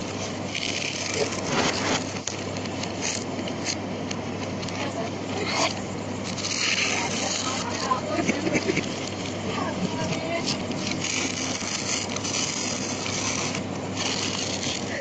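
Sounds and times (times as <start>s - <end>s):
paper rustling played backwards: 0.0s - 15.0s
steady low hum: 0.0s - 15.0s.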